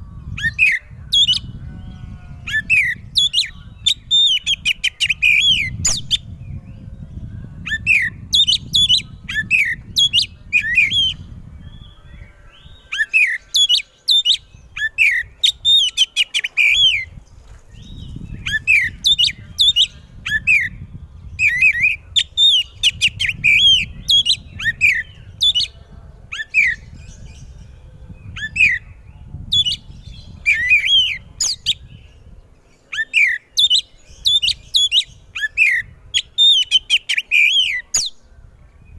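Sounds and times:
bird singing whistles and chirps: 0:00.0 - 0:38.9.

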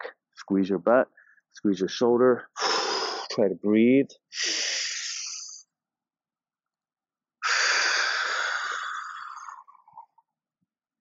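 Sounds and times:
man breathing audibly: 0:01.1 - 0:01.6, 0:02.6 - 0:03.4, 0:04.3 - 0:05.6, 0:07.4 - 0:10.2.

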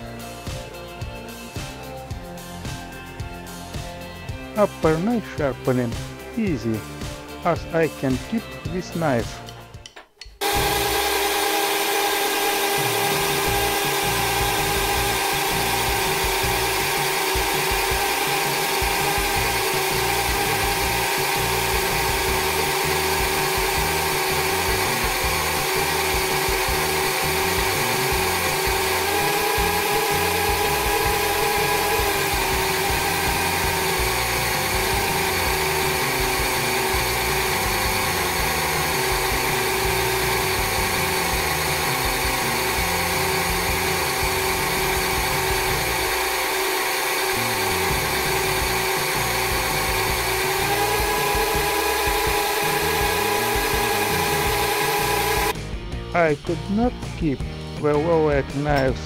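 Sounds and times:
cordless drill motor whine: 0:10.4 - 0:55.6.

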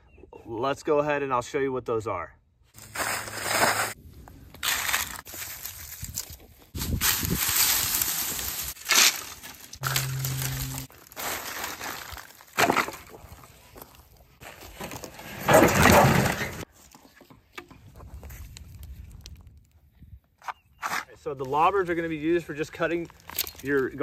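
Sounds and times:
dry branches crackling: 0:02.8 - 0:15.2, 0:22.8 - 0:24.0
low hum: 0:09.8 - 0:10.9.

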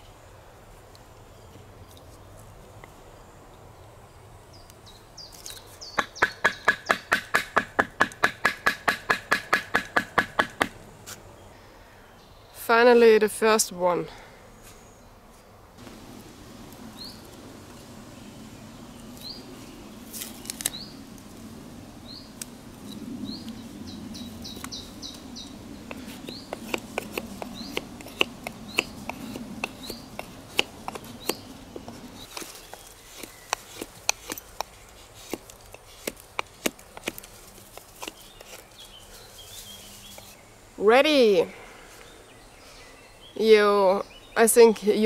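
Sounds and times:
bird chirping: 0:03.8 - 0:07.2, 0:16.8 - 0:21.1, 0:22.0 - 0:36.1, 0:38.0 - 0:45.0
knife carving wood: 0:05.3 - 0:11.2, 0:25.4 - 0:39.1.

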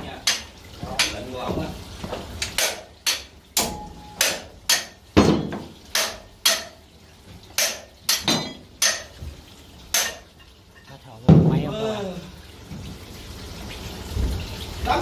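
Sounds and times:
hammer striking metal: 0:02.6 - 0:06.8, 0:07.6 - 0:09.1.

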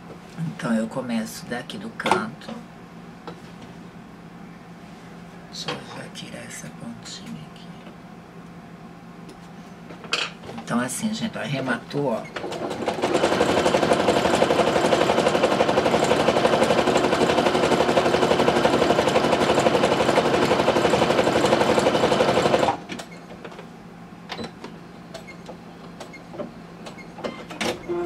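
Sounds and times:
sewing machine stitching: 0:12.4 - 0:23.1.

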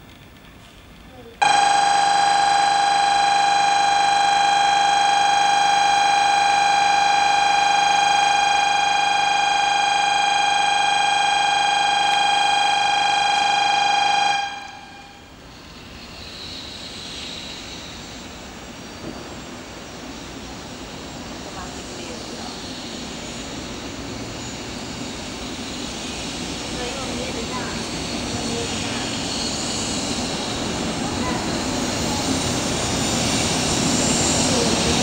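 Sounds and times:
platform warning buzzer tone: 0:01.4 - 0:15.3
faint rushing of approaching train: 0:13.2 - 0:35.0.

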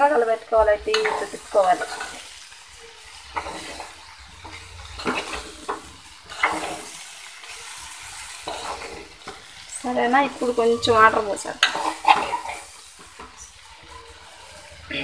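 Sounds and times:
food sizzling: 0:00.0 - 0:15.0
metal spoon stirring in metal pot: 0:03.0 - 0:14.8.

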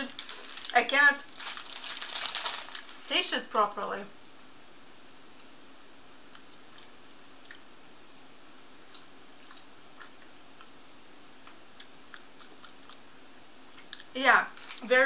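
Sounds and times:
mouth chewing clicks and smacks: 0:11.8 - 0:13.0.

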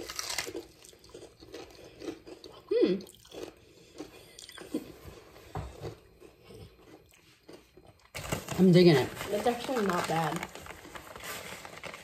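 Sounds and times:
crunching and chewing: 0:00.0 - 0:08.8.

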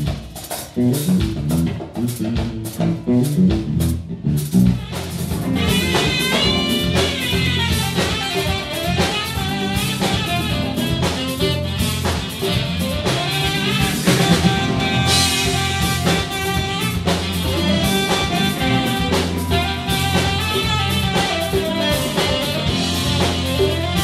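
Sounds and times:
drum kit: 0:00.0 - 0:24.0
electric bass groove: 0:00.0 - 0:24.0
melodic lead line: 0:05.0 - 0:24.0.

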